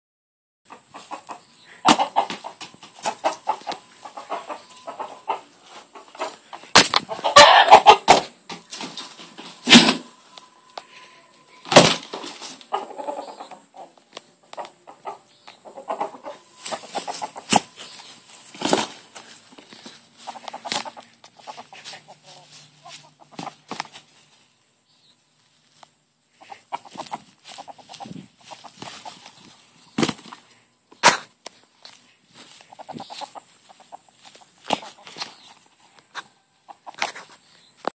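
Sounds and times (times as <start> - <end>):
rooster clucking: 0.7 - 8.6, 11.1 - 24.2, 26.3 - 31.3, 32.4 - 37.4
wings flapping: 18.5 - 19.0.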